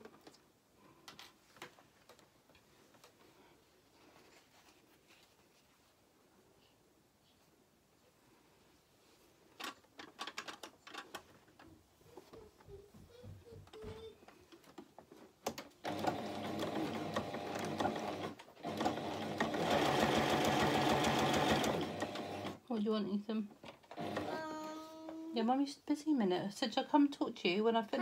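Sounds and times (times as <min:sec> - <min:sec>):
clicks and handling sounds: 0:00.0 - 0:05.8, 0:09.5 - 0:12.8
sewing machine stitching: 0:15.8 - 0:22.6, 0:23.9 - 0:24.4.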